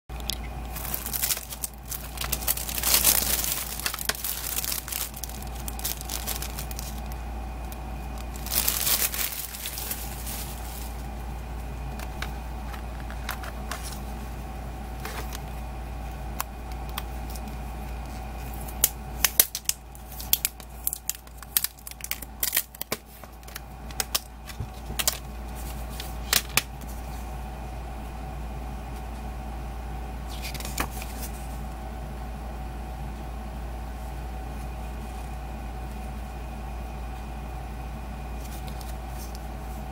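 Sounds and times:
steady low hum: 0.1 - 39.9
cellophane tearing and crinkling: 0.7 - 7.2, 8.1 - 11.0, 18.5 - 26.7.

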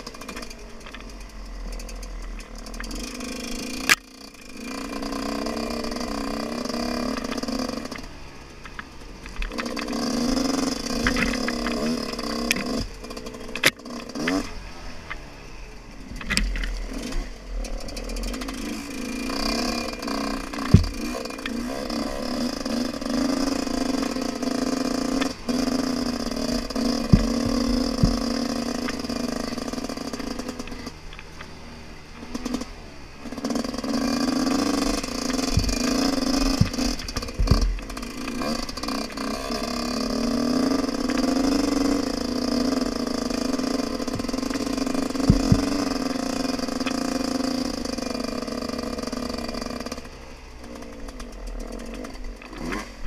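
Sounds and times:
dirt bike engine revving: 0.0 - 53.0
bike thumping over bumps: 16.1 - 31.5, 33.3 - 50.0.

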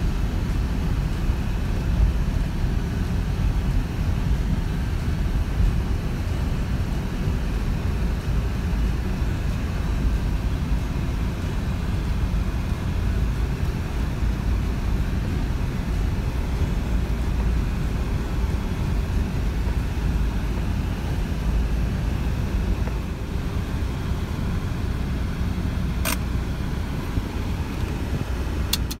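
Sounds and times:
tyres on dirt track: 0.0 - 29.0
vehicle engine rumble: 0.0 - 29.0
sharp click: 26.0 - 26.3, 28.7 - 29.0.

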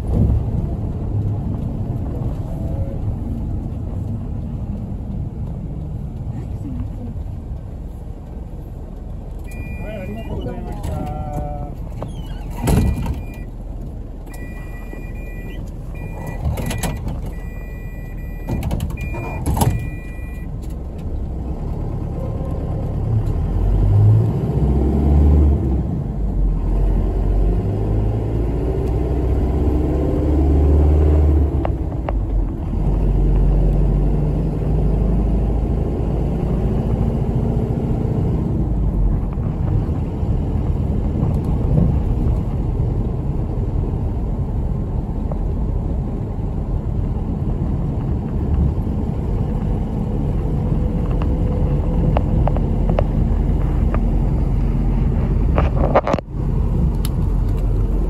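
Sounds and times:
bus engine rumble: 0.0 - 58.0
electronic two-pitch beeping: 9.5 - 10.4, 14.3 - 20.5.

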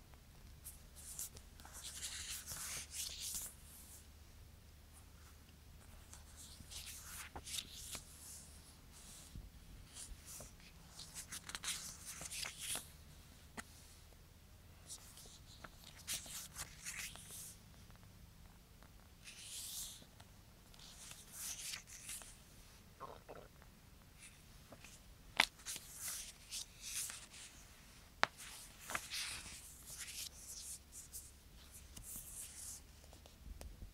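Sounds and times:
paper pages rustling: 0.7 - 3.9, 5.8 - 12.9, 14.8 - 17.6, 19.2 - 20.1, 20.7 - 22.4, 24.2 - 33.4
paper rustles and crinkles: 28.2 - 33.2.

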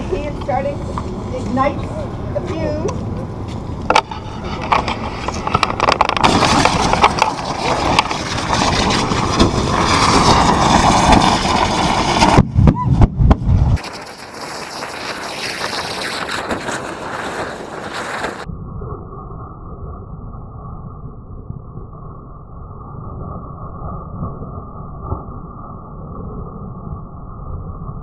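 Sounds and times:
balloons exploding with bangs: 6.1 - 18.5.

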